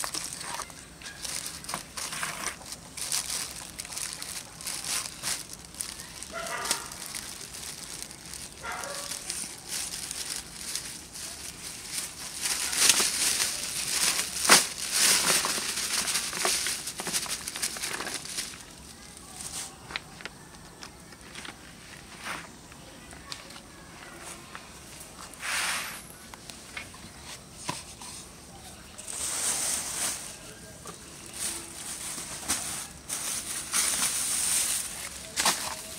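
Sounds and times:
plastic bag crinkling: 0:00.0 - 0:21.6, 0:28.9 - 0:35.9.

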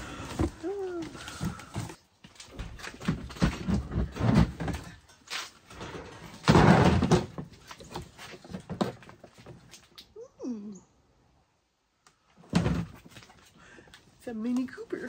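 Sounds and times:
boxes knocking and thumping: 0:00.1 - 0:05.1, 0:05.7 - 0:09.4, 0:12.4 - 0:13.3.

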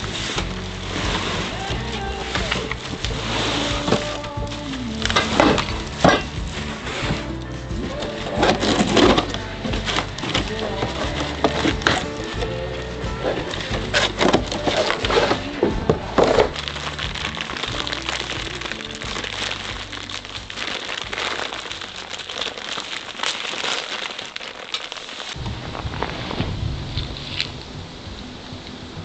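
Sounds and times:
cardboard box tearing: 0:00.0 - 0:07.3, 0:13.2 - 0:26.2
soft background music: 0:00.0 - 0:23.4
plastic bag crinkling: 0:00.0 - 0:27.6.

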